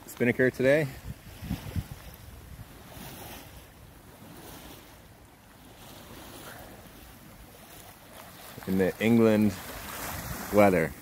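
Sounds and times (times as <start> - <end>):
water washing along a hull: 0.0 - 11.0
wind buffeting microphone: 0.8 - 5.1, 5.7 - 11.0.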